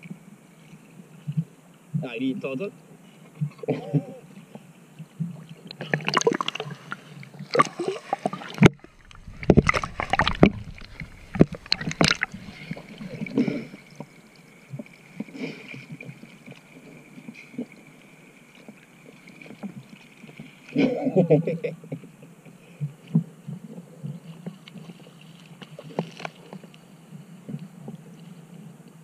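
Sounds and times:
water splashing against camera: 0:03.2 - 0:29.0.

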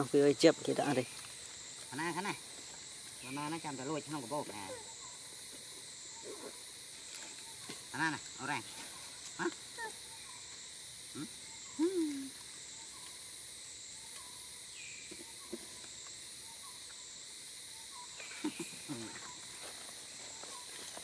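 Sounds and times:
insect drone: 0:00.0 - 0:21.0
low hoot-like call: 0:11.2 - 0:12.4.

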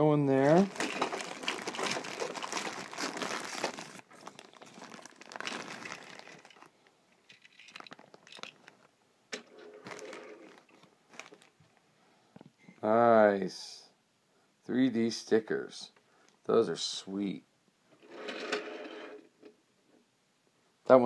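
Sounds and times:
plastic bag crinkling: 0:00.3 - 0:08.9, 0:09.6 - 0:11.7.

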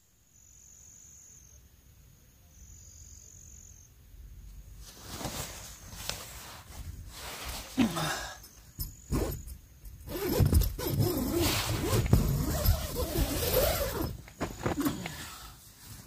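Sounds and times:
tent fabric rustling: 0:04.7 - 0:16.0
tent zipper opening: 0:09.1 - 0:15.2.

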